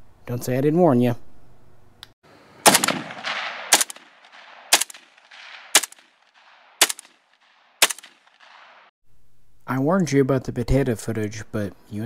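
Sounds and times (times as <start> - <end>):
rifle shots with echo: 2.6 - 8.9.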